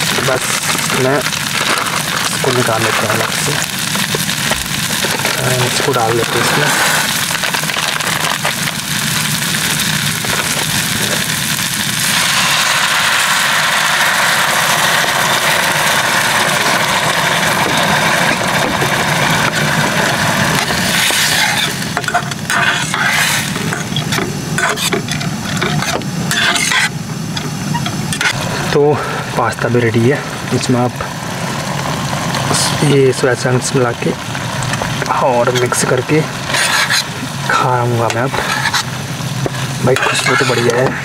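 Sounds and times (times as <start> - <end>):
gas stove hissing: 0.0 - 41.0
spatula scraping a pan: 20.5 - 28.4, 35.5 - 37.2, 38.0 - 41.0.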